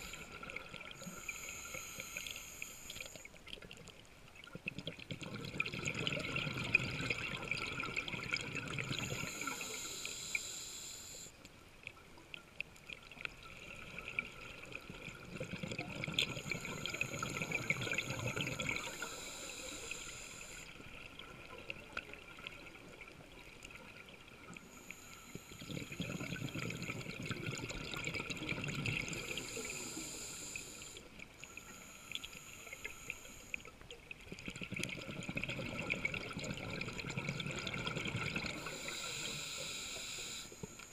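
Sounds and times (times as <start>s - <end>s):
regulator hissing inhale: 0.0s - 3.4s, 8.9s - 11.4s, 16.2s - 20.7s, 24.6s - 26.2s, 29.0s - 33.7s, 38.5s - 40.9s
exhale bubbling underwater: 0.0s - 10.4s, 12.9s - 31.2s, 31.8s - 40.4s.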